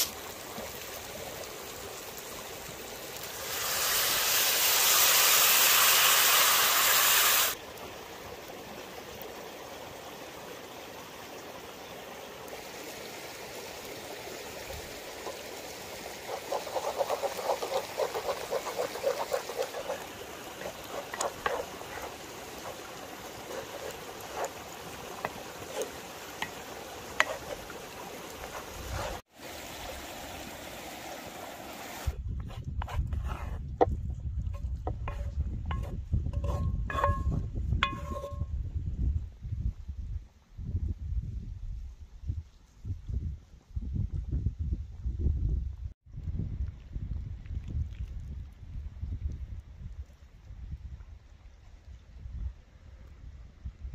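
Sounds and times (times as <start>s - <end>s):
stream running: 0.0s - 32.2s
water hitting hot skillet hissing: 2.7s - 7.6s, 15.2s - 29.5s
pasta sizzling in pan: 3.0s - 7.6s, 15.0s - 29.3s.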